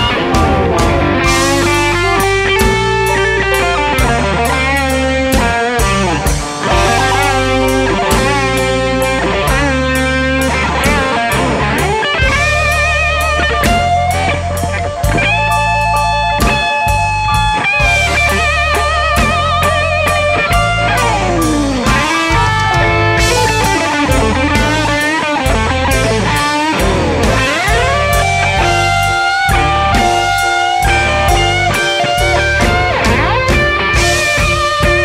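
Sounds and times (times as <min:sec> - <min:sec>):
electric blues band playing: 0:00.0 - 0:35.0
lead electric guitar bending notes: 0:00.0 - 0:35.0.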